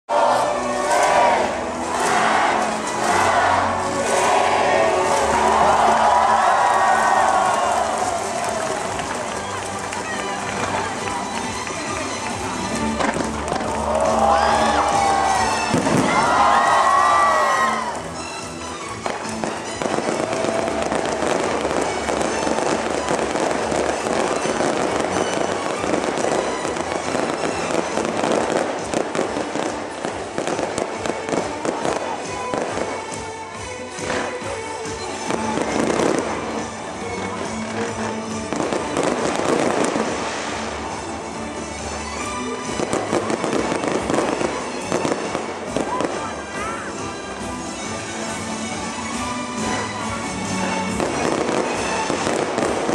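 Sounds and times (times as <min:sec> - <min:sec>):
stadium crowd cheering: 0:00.0 - 0:29.9
music: 0:00.0 - 0:52.9
fireworks crackling bangs: 0:00.4 - 0:46.7, 0:47.4 - 0:52.9.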